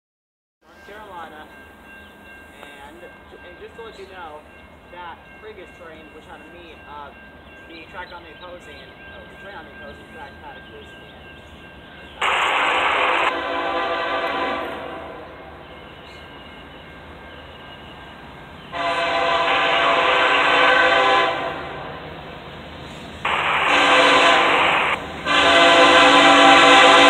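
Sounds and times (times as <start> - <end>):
locomotive air horn blasts: 12.2 - 15.5, 18.7 - 21.9, 23.3 - 27.0.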